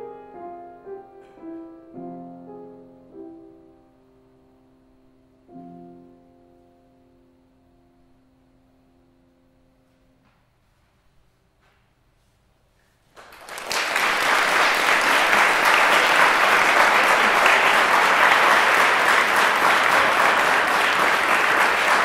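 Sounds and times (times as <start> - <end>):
audience applauding: 13.2 - 22.0.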